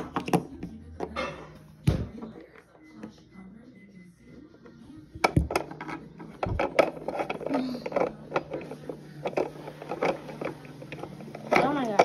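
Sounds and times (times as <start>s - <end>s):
plastic toys clicking on wooden table: 5.2s - 12.0s.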